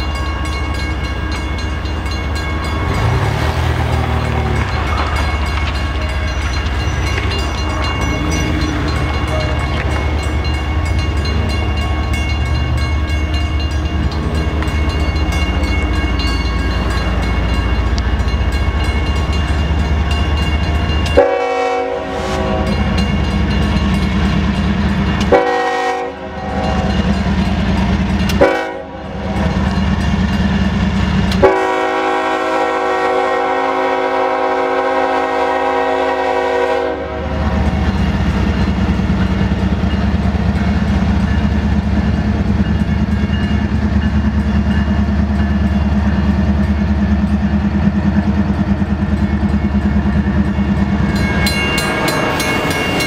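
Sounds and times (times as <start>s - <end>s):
railroad crossing bell ringing: 0.0s - 53.0s
locomotive air horn blasts: 21.2s - 23.0s, 25.3s - 27.1s, 28.4s - 29.2s, 31.4s - 37.4s.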